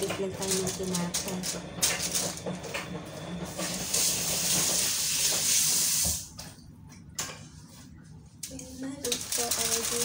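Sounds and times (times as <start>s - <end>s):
tap water running: 0.0s - 7.4s, 9.0s - 10.0s
hands rinsed under water: 3.6s - 6.6s
aluminium foil crinkling: 8.8s - 10.0s.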